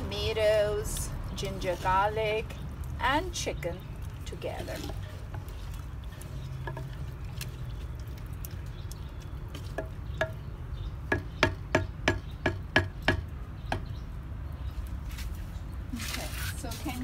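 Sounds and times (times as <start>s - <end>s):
wooden spatula stirring food: 0.1s - 13.1s
spatula knocking on clay pot: 6.5s - 7.0s, 9.5s - 14.0s.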